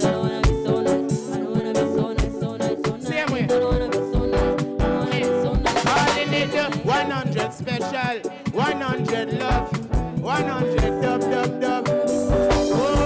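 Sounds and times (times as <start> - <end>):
man singing: 0.0 - 13.0
reggae band playing: 0.0 - 13.0
kick drum beat: 9.4 - 11.2.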